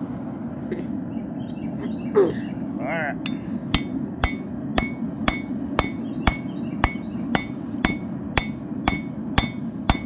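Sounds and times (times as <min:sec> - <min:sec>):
hammer striking steel chisel: 0:03.3 - 0:10.0.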